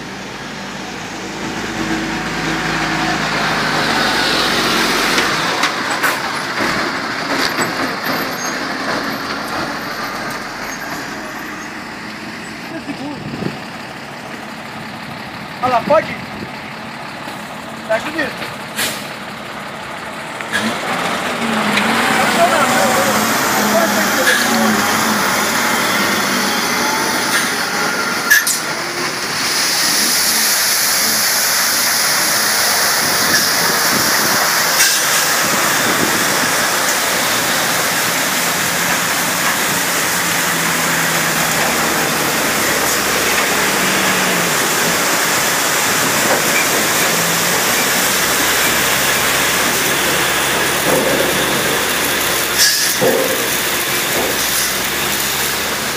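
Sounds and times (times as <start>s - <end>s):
water jets spraying hard: 20.6s - 55.9s.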